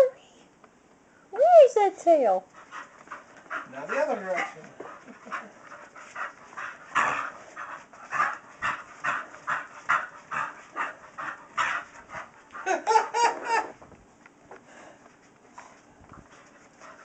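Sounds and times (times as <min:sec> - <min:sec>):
dog panting: 0:02.5 - 0:12.8, 0:15.5 - 0:17.0.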